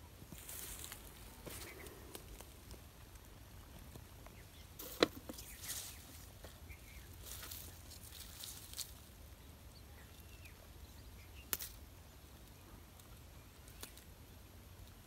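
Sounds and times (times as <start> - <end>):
rustling of fishing line: 4.8 - 9.2.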